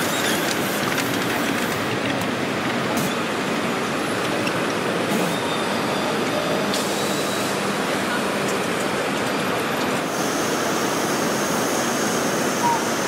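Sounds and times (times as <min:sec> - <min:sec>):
model train running: 0:00.0 - 0:05.0, 0:07.0 - 0:13.0.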